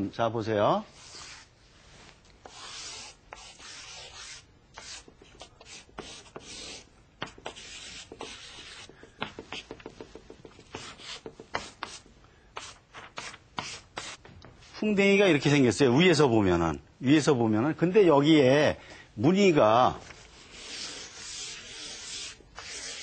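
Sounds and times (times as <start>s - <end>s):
pen scratching on paper: 2.5s - 12.0s, 20.5s - 23.0s.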